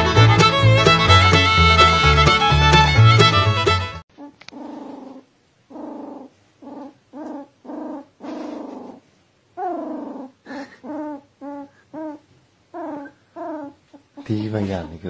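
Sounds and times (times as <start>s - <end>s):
animal growling: 4.2s - 9.0s, 9.6s - 12.2s.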